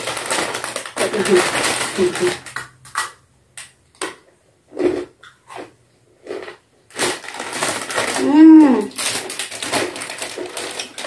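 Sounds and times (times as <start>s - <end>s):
crunching crisp snack: 0.0s - 11.0s.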